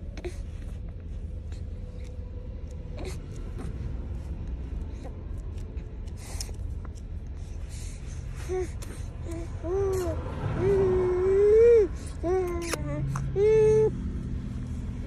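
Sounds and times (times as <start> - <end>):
baby vocal sound: 8.4 - 14.0
baby sucking and swallowing: 12.4 - 13.3.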